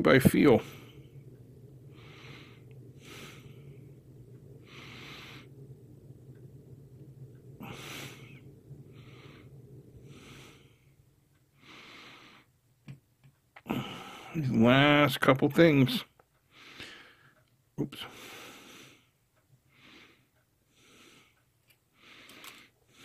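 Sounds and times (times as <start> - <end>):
low steady hum: 0.0 - 23.0
heavy breathing through nose: 1.8 - 4.0, 4.6 - 5.7, 7.6 - 12.6, 13.6 - 14.4, 16.5 - 17.4, 18.0 - 23.0.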